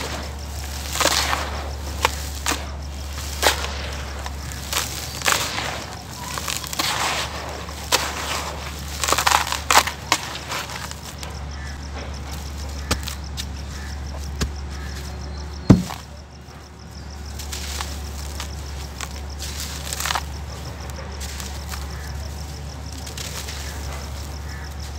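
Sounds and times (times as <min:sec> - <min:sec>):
dirt crumbled by hand: 0:00.0 - 0:24.9
steady low hum: 0:00.0 - 0:24.9
sharp knock: 0:15.7 - 0:16.0.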